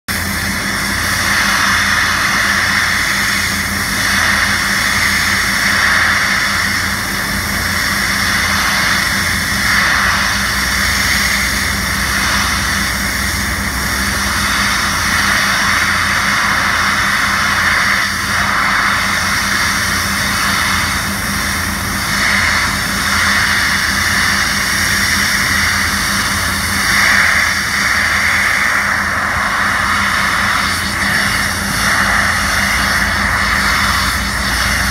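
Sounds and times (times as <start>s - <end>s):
high-pressure water jet hissing: 0.1s - 34.9s
low hum: 0.1s - 34.9s.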